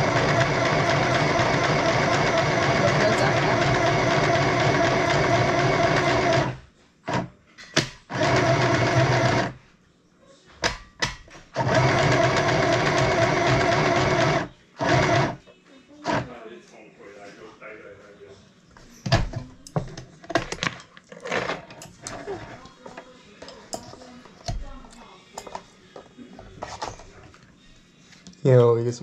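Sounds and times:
sewing machine stitching: 0.0 - 7.3, 8.1 - 9.6, 11.5 - 15.4, 16.0 - 16.4.

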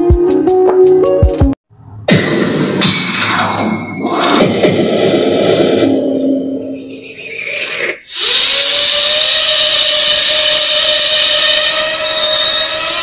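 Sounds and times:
music: 0.0 - 6.8
drone motors whining: 6.8 - 13.0.

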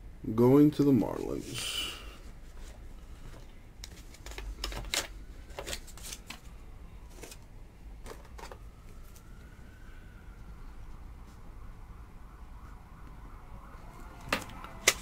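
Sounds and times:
faint siren: 5.0 - 15.0.

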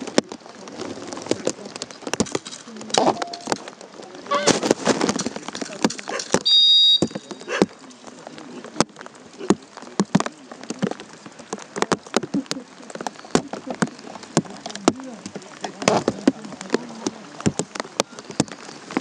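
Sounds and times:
whistle blast: 6.4 - 7.3.

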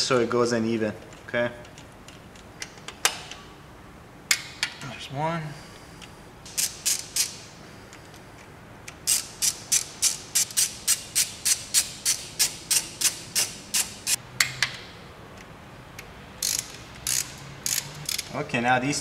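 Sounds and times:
hand ratchet clicking: 6.5 - 7.4, 8.9 - 14.6, 16.4 - 18.3.

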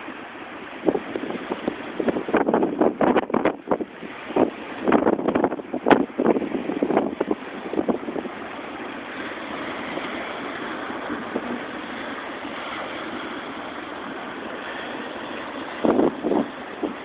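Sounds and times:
water breaking on rocky shore: 0.0 - 17.0
wind buffeting microphone: 0.0 - 17.0.

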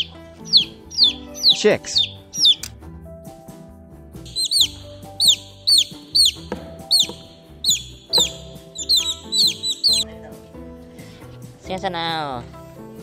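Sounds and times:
baby chicks peeping: 0.0 - 2.7, 4.3 - 10.0.

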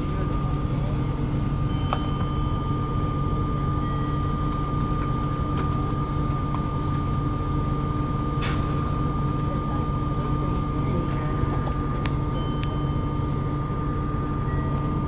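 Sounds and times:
high-pitched tone: 0.0 - 7.8
train interior rumble and hum: 0.0 - 15.0.

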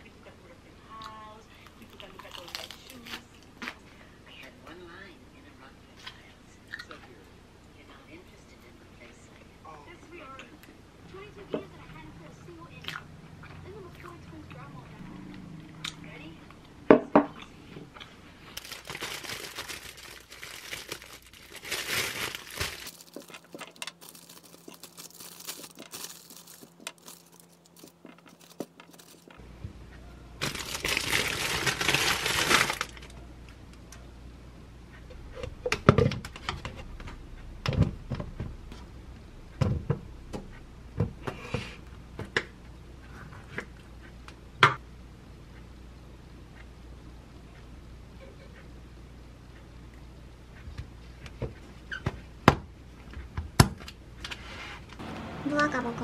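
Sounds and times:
rustling and plastic crinkling: 18.4 - 29.4, 30.4 - 33.2.

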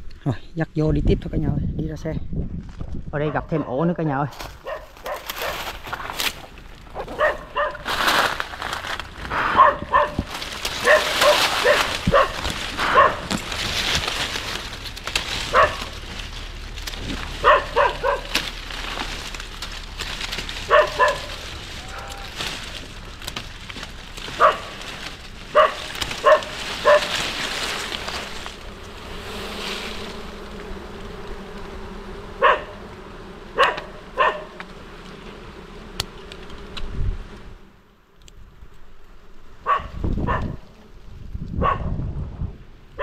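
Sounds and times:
dog barking: 3.2 - 3.9, 4.6 - 5.6, 7.0 - 7.9, 9.5 - 13.3, 15.5 - 15.9, 17.4 - 18.4, 20.7 - 21.4, 24.4 - 24.8, 25.5 - 27.2, 32.4 - 32.8, 33.6 - 34.6, 39.6 - 40.6, 41.6 - 41.9
crackling rustle: 4.3 - 41.8.

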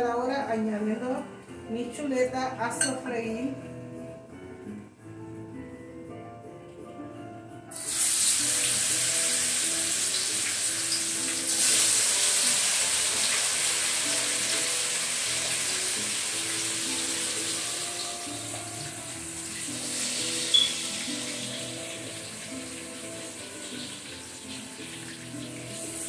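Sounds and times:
pork chops sizzling in a skillet: 7.7 - 26.0.

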